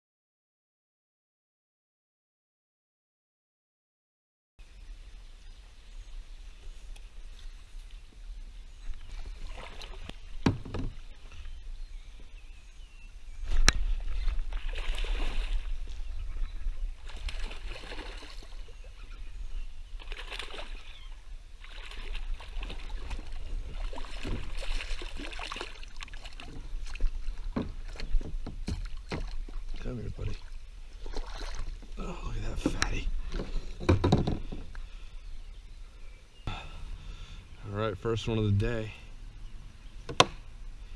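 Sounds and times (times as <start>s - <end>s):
water sloshing against hull: 6.6s - 12.4s, 13.4s - 35.2s
fish splashing at water surface: 14.5s - 15.7s, 17.0s - 18.6s, 20.0s - 21.0s, 21.6s - 27.1s.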